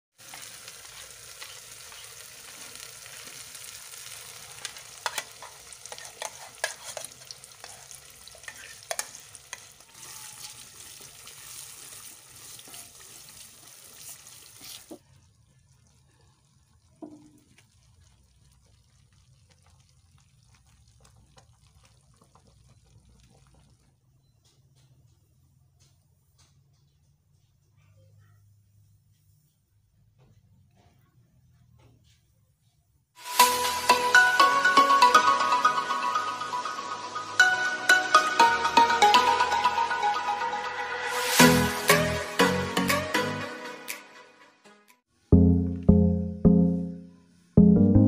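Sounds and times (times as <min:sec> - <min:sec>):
food sizzling in a pot: 0:00.1 - 0:23.7, 0:33.2 - 0:39.8, 0:41.0 - 0:42.7
faint stirring in sauce: 0:00.3 - 0:24.3.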